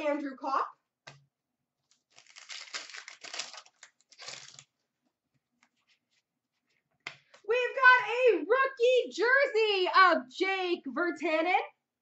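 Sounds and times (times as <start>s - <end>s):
card pack wrapper crinkling: 1.9s - 4.8s.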